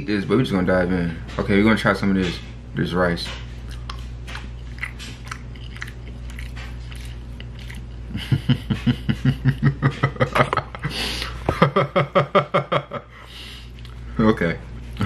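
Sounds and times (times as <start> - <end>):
man chewing: 3.5 - 11.5, 13.3 - 14.1
man laughing: 8.1 - 13.2.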